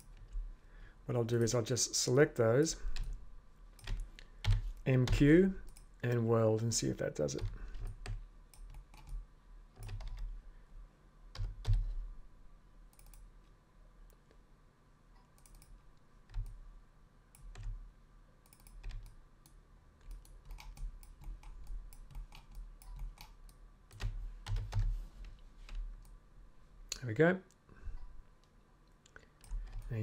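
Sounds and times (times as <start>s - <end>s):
keyboard and mouse clicking: 3.8s - 6.2s, 7.3s - 9.2s, 9.8s - 10.3s, 12.9s - 13.3s, 15.2s - 16.6s, 18.4s - 26.2s, 29.1s - 30.0s.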